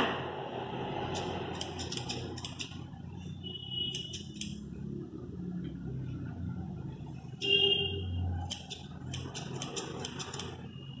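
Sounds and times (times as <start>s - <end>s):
scissors snipping hair: 8.5s - 10.4s.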